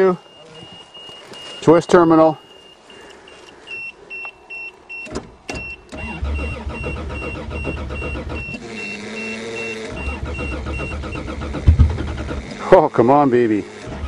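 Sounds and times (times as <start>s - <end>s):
car warning chime beeping: 0.0s - 11.5s
starter cranking engine: 5.9s - 14.0s.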